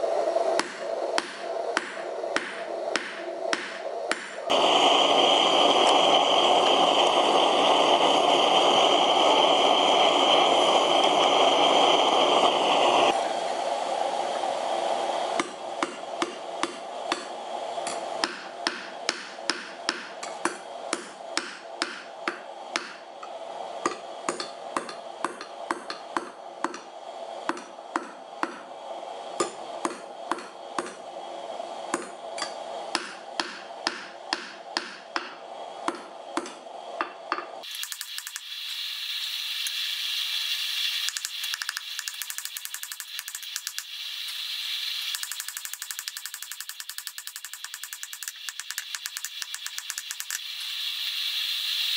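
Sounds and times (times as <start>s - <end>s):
gas torch hissing: 0.0s - 51.9s
hammer striking steel on anvil: 0.6s - 4.5s, 15.4s - 23.0s, 23.8s - 26.9s, 27.5s - 28.6s, 29.4s - 31.0s, 31.9s - 37.5s.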